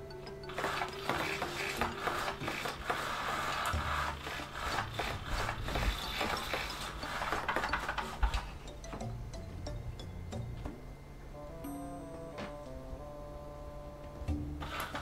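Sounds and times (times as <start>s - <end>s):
rubbing and scraping: 0.6s - 8.6s.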